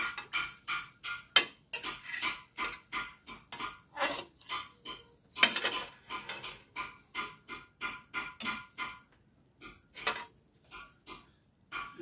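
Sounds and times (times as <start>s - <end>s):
metal spatula scraping a wok: 0.0s - 6.8s, 9.9s - 11.0s.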